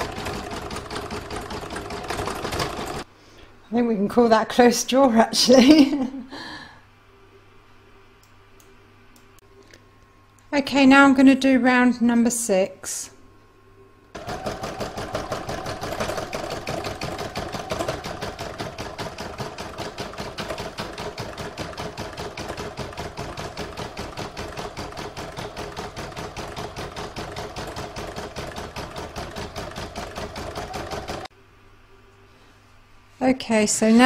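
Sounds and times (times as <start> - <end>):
embroidery machine stitching: 0.0 - 3.0, 14.2 - 31.3.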